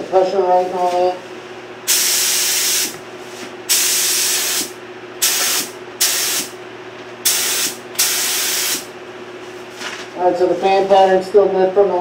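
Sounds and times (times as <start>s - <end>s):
paint spray gun hissing: 1.9s - 3.0s, 3.7s - 6.6s, 7.2s - 8.9s.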